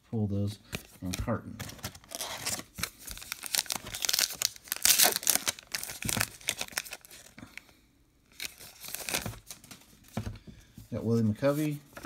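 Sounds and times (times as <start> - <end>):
wrapper ripping and crinkling: 1.6 - 7.4, 8.3 - 9.8.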